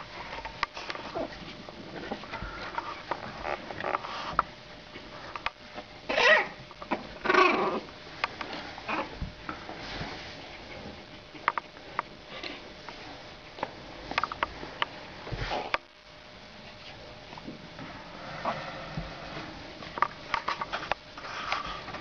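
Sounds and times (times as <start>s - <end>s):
puppies sniffing and snuffling: 0.0s - 5.4s.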